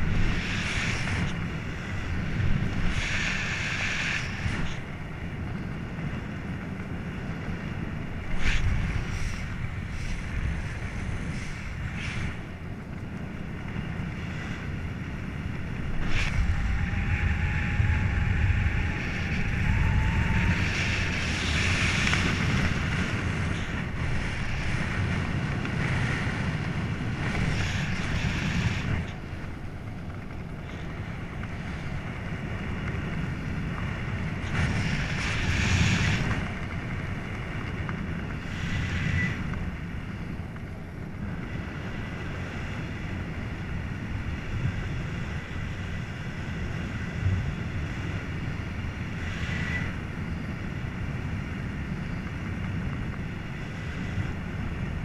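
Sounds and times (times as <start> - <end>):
wind on microphone: 0.0 - 55.0.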